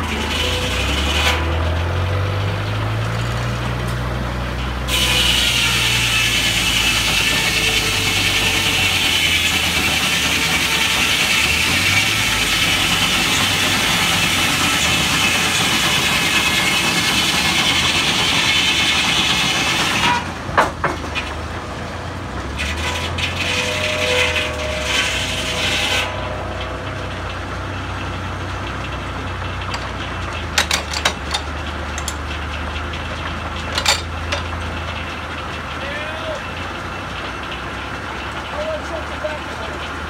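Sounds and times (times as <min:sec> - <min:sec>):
saw blade cutting log: 0:00.0 - 0:02.3, 0:04.8 - 0:21.3, 0:22.5 - 0:27.5
saw running with low hum: 0:00.0 - 0:03.6, 0:04.2 - 0:20.3, 0:22.5 - 0:30.3
metal clanks and knocks: 0:19.9 - 0:21.7, 0:22.3 - 0:35.8.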